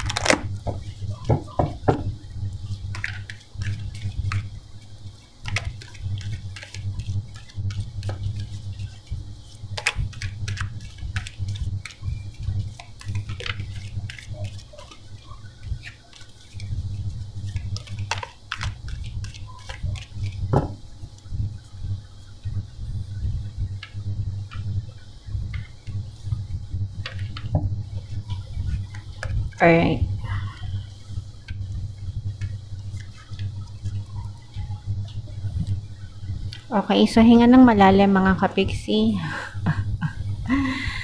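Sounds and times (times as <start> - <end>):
cards being shuffled: 0.0 - 1.8, 5.3 - 16.7, 17.4 - 20.7.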